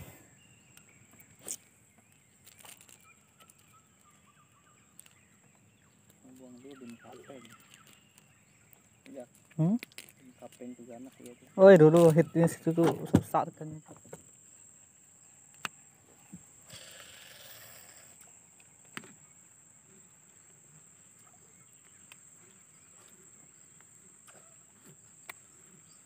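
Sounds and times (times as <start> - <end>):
high insect whine: 0.0 - 26.0
fishing line paying out from reel: 16.6 - 18.3.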